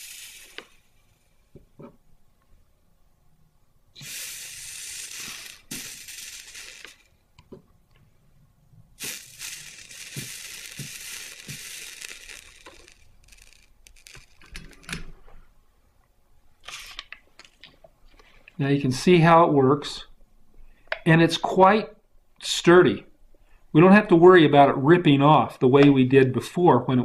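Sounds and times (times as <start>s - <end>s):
flux sizzling under soldering iron: 0.0s - 1.2s, 4.0s - 7.2s, 9.0s - 14.9s.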